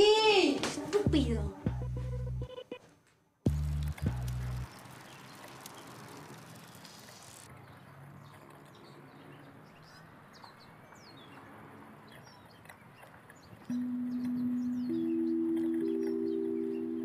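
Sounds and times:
wind and road noise: 3.5s - 13.8s
birds chirping: 3.5s - 17.0s.

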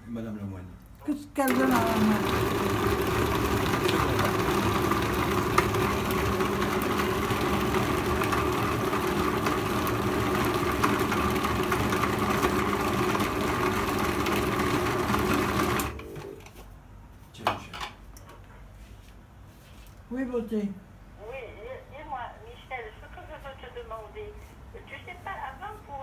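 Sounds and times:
electric kitchen mixer running: 1.4s - 16.2s.

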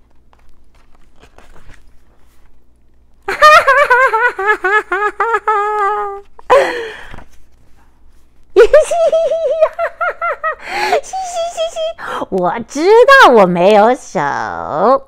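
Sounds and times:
woman laughing: 3.3s - 7.1s, 8.6s - 12.1s.

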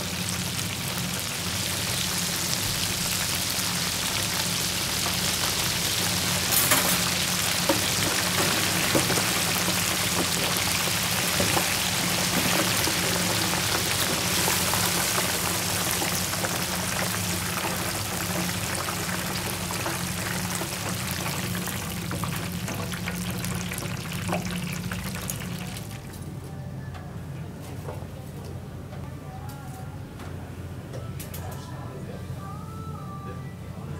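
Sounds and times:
shrimps sizzling in hot oil: 0.0s - 26.0s.

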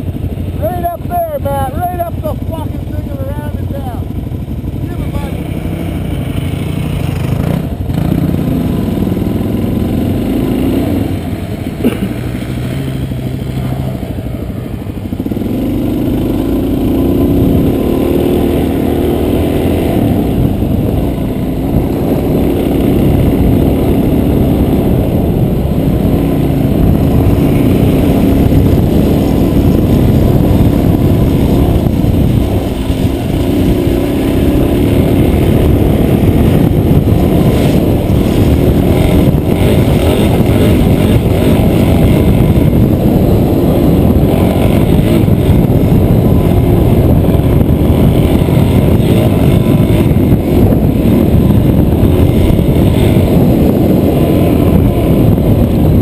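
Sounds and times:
motorcycle engine revving: 0.0s - 56.0s.

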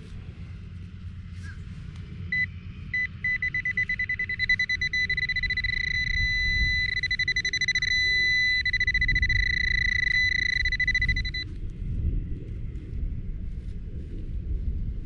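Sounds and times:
metal detector beeping: 2.3s - 11.5s.

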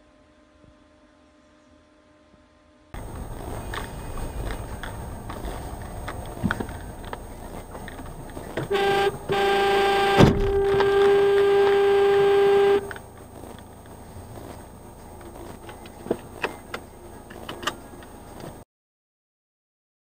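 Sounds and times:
car running noise: 3.0s - 18.6s
car horn: 8.6s - 13.0s
sharp thump: 10.1s - 10.9s.

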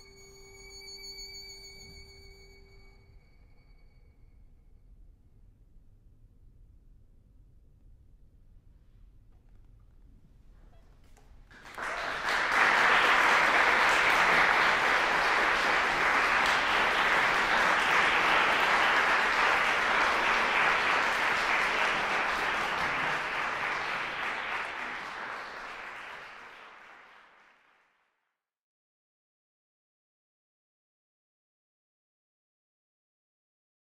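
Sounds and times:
audience applauding: 11.5s - 27.9s.

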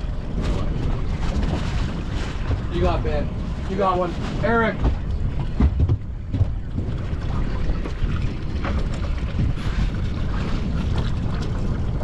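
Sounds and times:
wind buffeting microphone: 0.0s - 12.0s
knocks and thumps: 4.7s - 7.1s.

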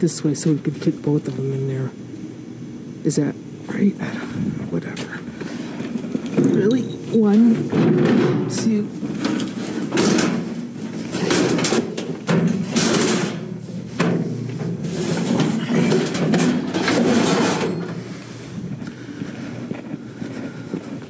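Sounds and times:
metal panels scraping and clanking: 7.4s - 18.5s.

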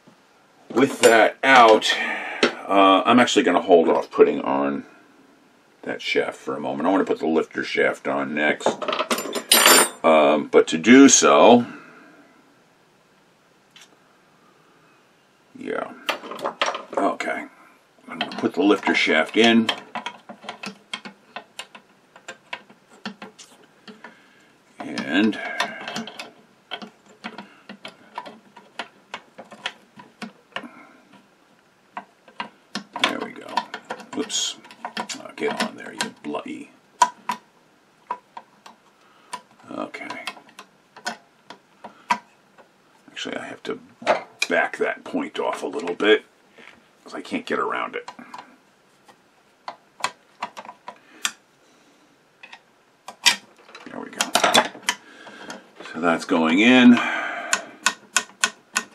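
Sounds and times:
metallic clicks and light knocks: 56.9s - 58.9s.

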